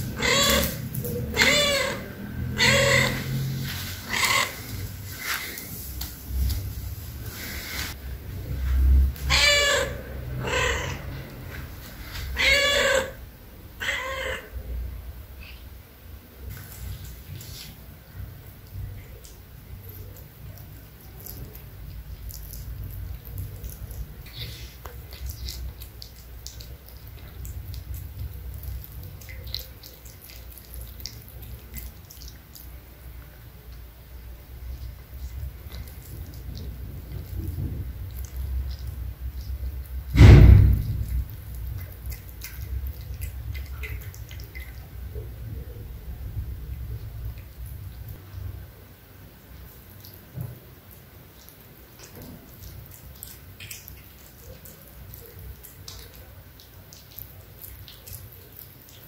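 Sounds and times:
low steady rumble: 0.0s - 59.0s
cat meowing: 0.2s - 3.4s, 9.3s - 11.3s, 12.3s - 13.2s, 13.8s - 14.6s
cat chewing and licking: 16.5s - 48.4s, 49.3s - 59.0s.

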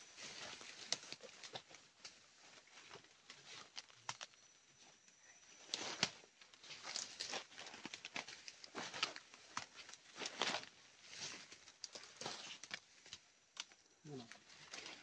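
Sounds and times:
footsteps crunching dry leaves: 5.6s - 13.0s.

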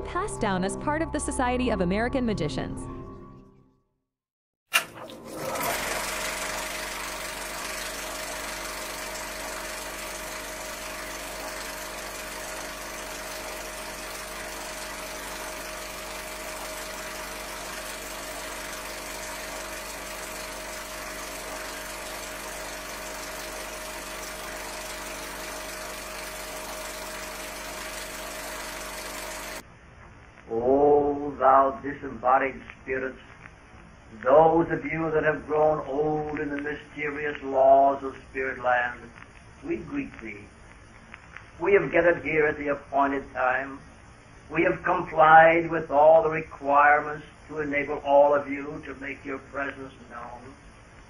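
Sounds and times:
film projector whirring: 4.7s - 29.6s.

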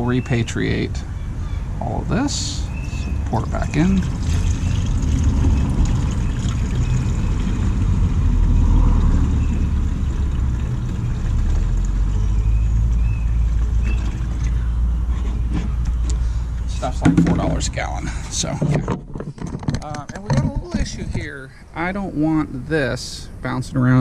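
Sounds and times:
fluid pouring into plastic reservoir: 3.6s - 8.0s.

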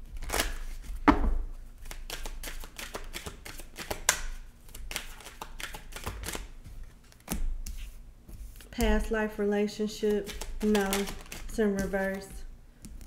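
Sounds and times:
cards being shuffled: 1.8s - 9.0s, 10.1s - 13.0s.

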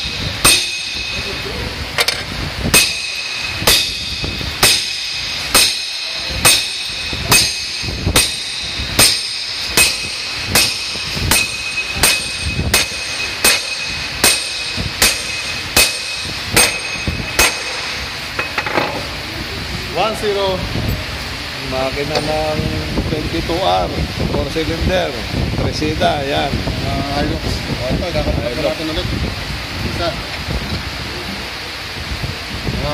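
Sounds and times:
ringing hammer blows on metal: 0.0s - 19.0s.

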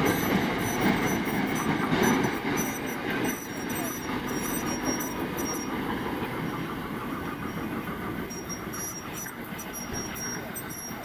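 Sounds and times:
high-pitched squeaks: 0.0s - 5.8s, 8.3s - 11.0s
train wheels rumbling on rail: 0.0s - 11.0s.

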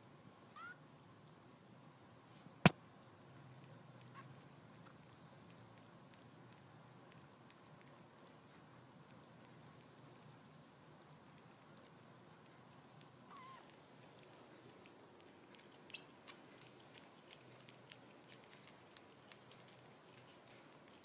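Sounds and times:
kittens suckling wet clicks: 0.8s - 2.0s, 2.6s - 21.0s
kitten squeak: 13.3s - 13.7s.

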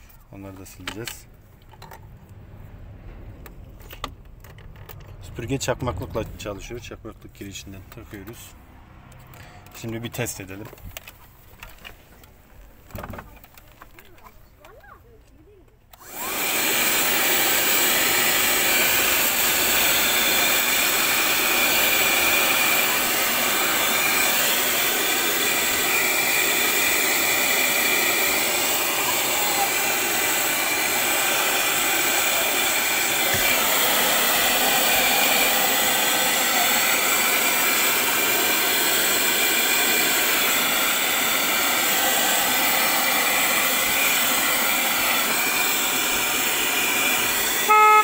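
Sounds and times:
handheld vacuum running: 15.9s - 48.0s
short loud tone: 47.6s - 48.0s.

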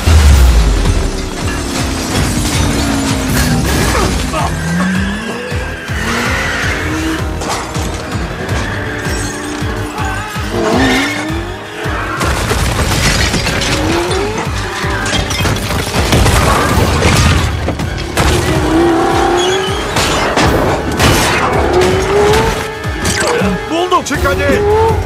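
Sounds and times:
crashes and shattering: 0.0s - 5.2s, 12.0s - 23.3s
car engine revving: 0.0s - 12.5s, 13.4s - 15.1s, 17.9s - 23.0s
dramatic score music: 0.0s - 25.0s
tyres skidding: 0.8s - 25.0s.

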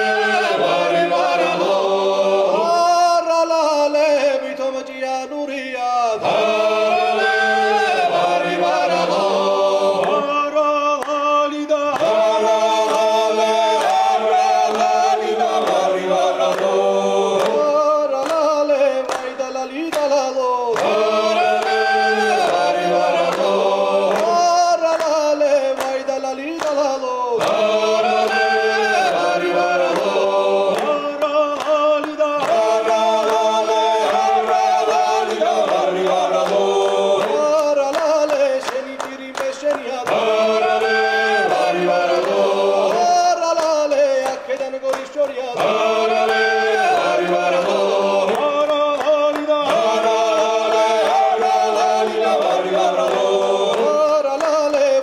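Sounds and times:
male choir singing a cappella: 0.0s - 55.0s
singers clapping in time: 0.0s - 55.0s.

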